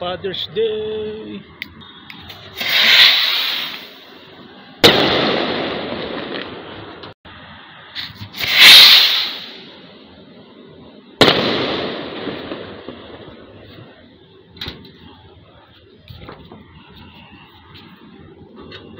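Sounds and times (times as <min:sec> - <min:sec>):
rocket whooshing on takeoff: 0:02.3 - 0:06.6, 0:07.9 - 0:09.8
bottle rocket bangs echoing: 0:02.6 - 0:04.0, 0:04.8 - 0:06.4, 0:08.4 - 0:09.7.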